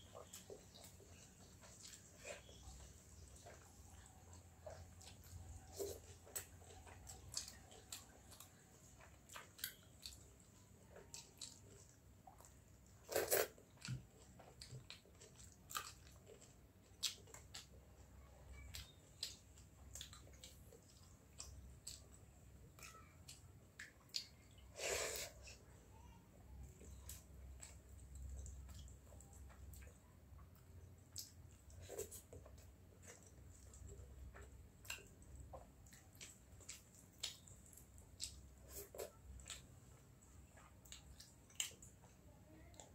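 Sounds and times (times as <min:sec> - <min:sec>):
person chewing: 0:00.0 - 0:25.7, 0:26.6 - 0:42.9.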